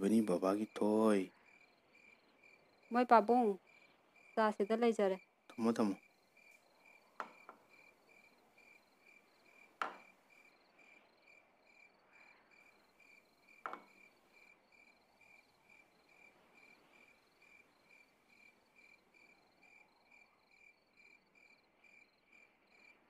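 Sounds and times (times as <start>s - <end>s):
cricket chirping: 0.0s - 23.0s.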